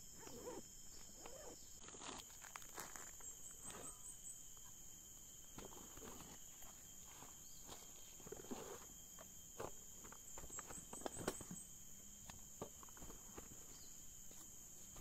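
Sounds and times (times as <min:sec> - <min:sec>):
insects droning: 0:00.0 - 0:15.0
crunches and rustles: 0:00.2 - 0:04.0.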